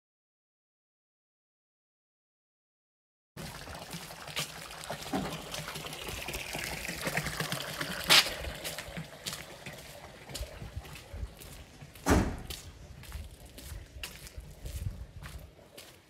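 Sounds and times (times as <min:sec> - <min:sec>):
water splashing into trough: 0:03.4 - 0:10.8.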